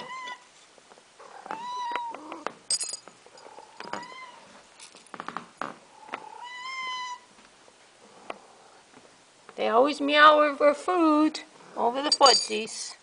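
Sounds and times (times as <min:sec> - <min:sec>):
cats meowing: 0:00.0 - 0:00.5, 0:01.2 - 0:02.6, 0:03.4 - 0:04.6, 0:06.0 - 0:07.3.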